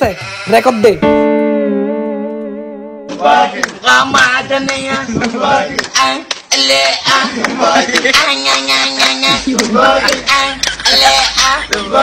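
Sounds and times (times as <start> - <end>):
song with singing over a beat: 3.0 - 12.0.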